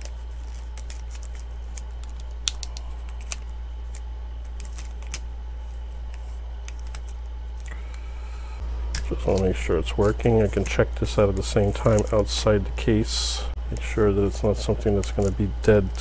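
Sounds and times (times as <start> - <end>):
adhesive tape clicks and crinkles: 0.0 - 5.3, 6.1 - 7.8, 11.4 - 12.2, 14.9 - 15.5
steady low hum: 0.0 - 16.0.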